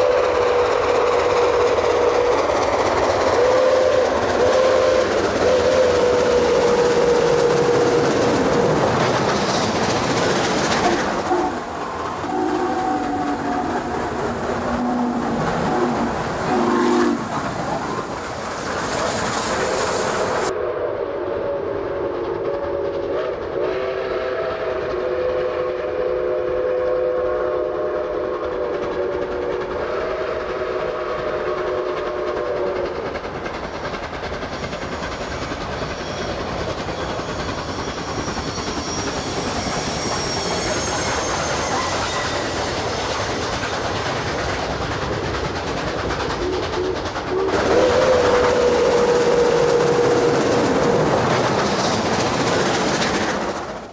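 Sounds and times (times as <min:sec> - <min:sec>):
single-note steam whistle: 0:00.0 - 0:02.5, 0:03.4 - 0:08.7, 0:12.3 - 0:13.9, 0:14.8 - 0:17.2, 0:19.6 - 0:32.9, 0:36.0 - 0:43.0, 0:46.8 - 0:51.2
steam train running and rail clatter: 0:00.0 - 0:53.9.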